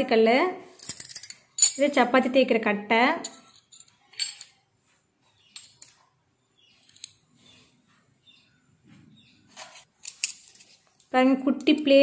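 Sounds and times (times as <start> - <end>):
small utensils clinking on stone: 3.2 - 4.6.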